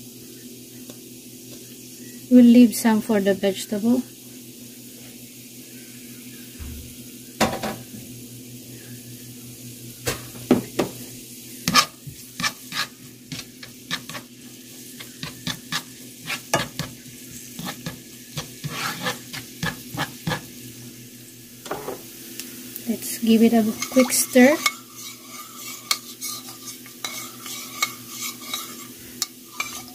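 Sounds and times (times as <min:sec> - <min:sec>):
garlic and ginger sizzling in oil: 0:00.0 - 0:29.9
spatula scraping and tapping pan: 0:11.6 - 0:14.3, 0:14.9 - 0:20.5, 0:23.6 - 0:29.9.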